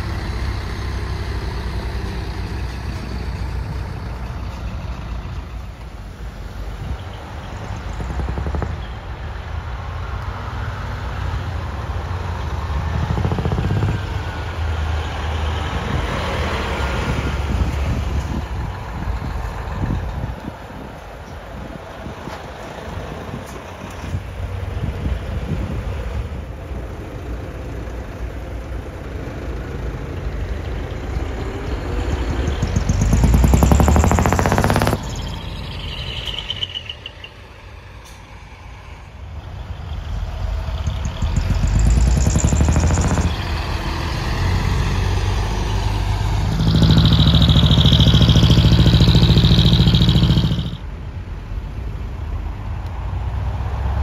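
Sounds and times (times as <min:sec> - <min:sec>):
diesel trucks driving past: 0:00.0 - 0:54.0.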